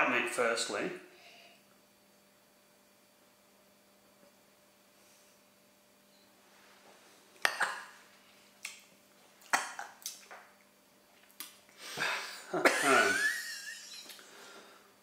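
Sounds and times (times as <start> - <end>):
people coughing and gasping: 12.0 - 13.3.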